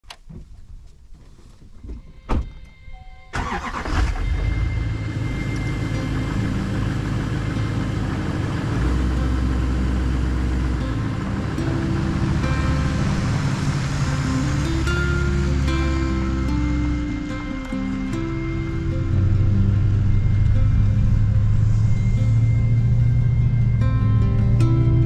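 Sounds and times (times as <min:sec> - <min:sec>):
truck door shutting: 0:01.8 - 0:04.6
engine cranking and idling: 0:03.3 - 0:25.0.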